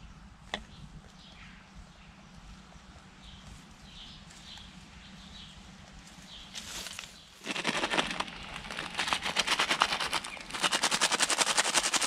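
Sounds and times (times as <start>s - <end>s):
footsteps through long grass: 6.0s - 9.5s.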